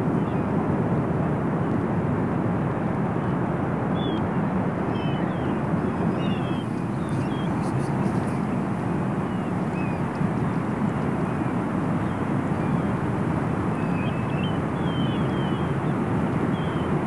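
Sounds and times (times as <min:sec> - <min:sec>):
low rushing outdoor ambience: 0:00.0 - 0:17.0
birds chirping: 0:04.9 - 0:17.0.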